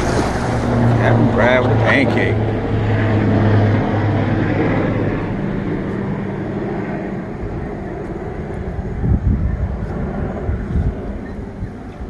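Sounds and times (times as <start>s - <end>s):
low steady hum: 0.0s - 12.0s
wind buffeting microphone: 0.0s - 12.0s.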